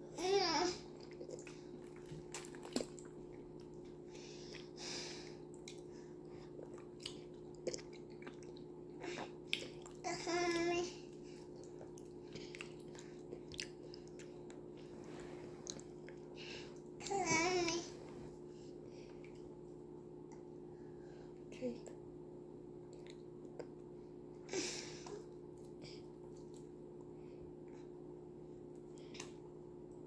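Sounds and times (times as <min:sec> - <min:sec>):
steady low hum: 0:00.0 - 0:30.0
child babbling: 0:00.2 - 0:00.8, 0:10.0 - 0:11.0, 0:17.0 - 0:17.9
chewing and lip smacks: 0:01.0 - 0:03.9, 0:05.5 - 0:10.0, 0:11.1 - 0:14.9, 0:15.6 - 0:16.2, 0:22.9 - 0:23.8, 0:25.5 - 0:26.8.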